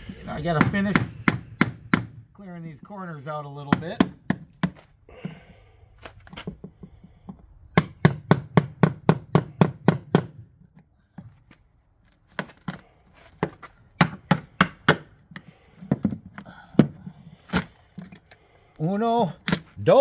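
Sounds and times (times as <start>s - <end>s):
hammer striking chisel into wood: 0.6s - 2.2s, 3.7s - 4.8s, 7.7s - 10.4s, 14.0s - 15.1s.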